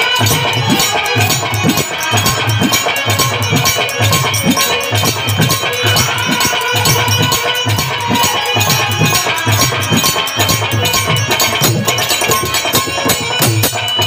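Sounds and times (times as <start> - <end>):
held melody line: 0.0 - 14.0
steady drum beat: 0.0 - 14.0.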